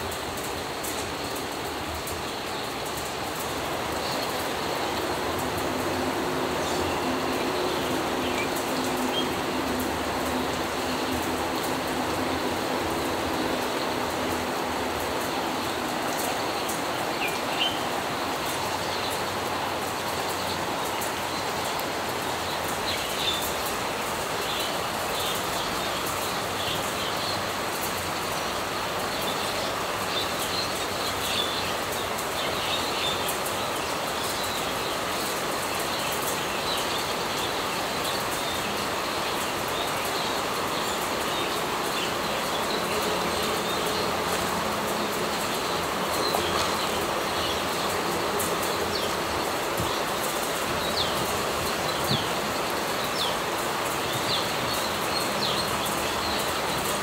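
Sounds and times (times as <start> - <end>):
outdoor background noise: 0.0 - 57.0.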